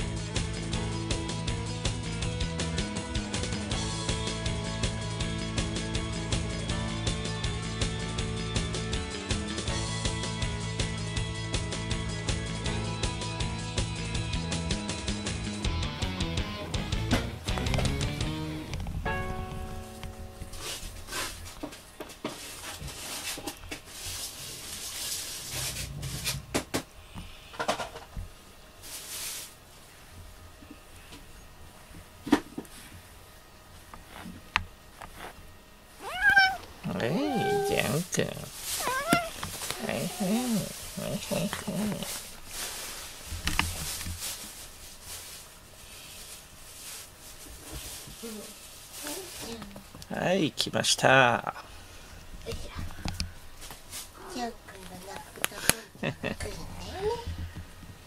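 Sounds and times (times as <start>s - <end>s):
cat fur rustling: 18.8s - 26.5s, 28.8s - 30.0s, 35.0s - 49.9s, 53.5s - 55.4s
hand stroking fur: 20.4s - 21.5s, 36.0s - 45.4s.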